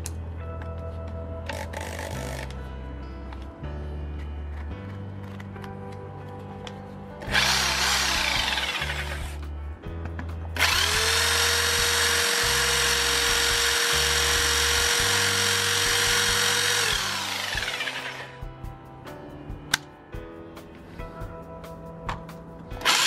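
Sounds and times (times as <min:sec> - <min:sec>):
background music with bass line: 0:00.0 - 0:23.0
hammer drill drilling into stone: 0:07.3 - 0:09.4, 0:10.6 - 0:18.4.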